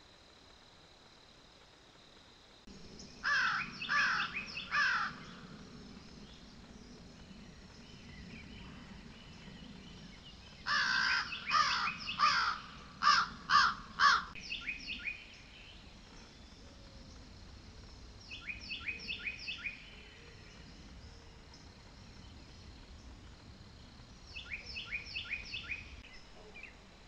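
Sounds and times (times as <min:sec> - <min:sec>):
crow cawing: 0:03.2 - 0:05.4, 0:10.7 - 0:14.4.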